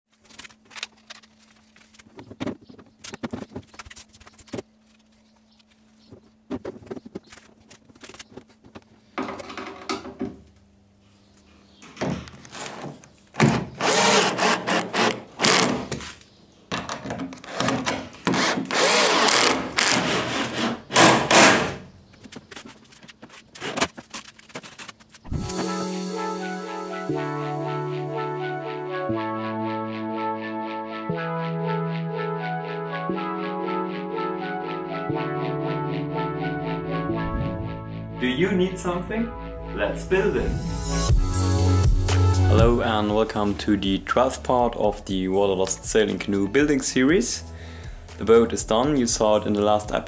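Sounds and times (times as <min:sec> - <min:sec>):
cordless drill driving screws: 0:13.8 - 0:15.8, 0:18.3 - 0:21.6.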